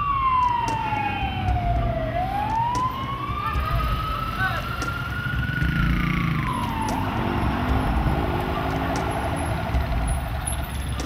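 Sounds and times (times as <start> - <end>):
police siren wailing: 0.0 - 11.0
vehicle engine running: 0.0 - 11.0.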